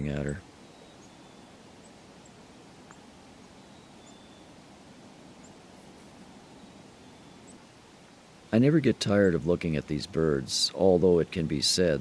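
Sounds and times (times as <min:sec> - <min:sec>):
chickadees chirping: 0:00.0 - 0:08.3
steady low hiss: 0:00.0 - 0:12.0.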